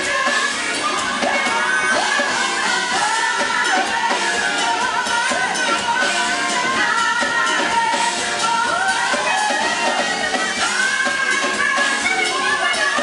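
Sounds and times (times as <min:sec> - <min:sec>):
soul-pop band with horns: 0:00.0 - 0:13.0
women singing together: 0:00.0 - 0:13.0.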